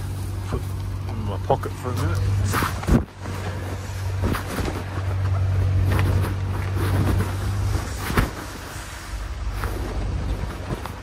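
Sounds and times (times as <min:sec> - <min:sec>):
low mechanical hum: 0:00.0 - 0:11.0
knocks and rustles in dumpster: 0:02.4 - 0:11.0.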